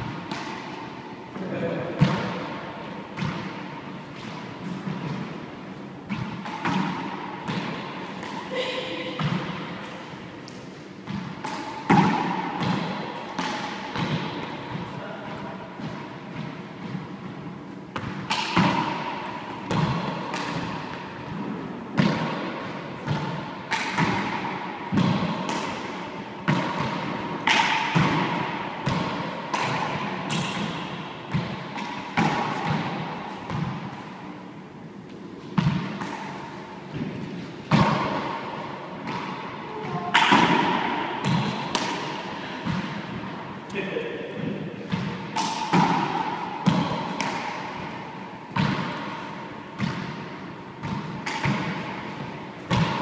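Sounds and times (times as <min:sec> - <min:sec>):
rubber ball hits echoing: 0:00.0 - 0:00.8, 0:01.4 - 0:05.4, 0:06.1 - 0:10.0, 0:11.0 - 0:14.9, 0:17.9 - 0:33.9, 0:35.6 - 0:53.0.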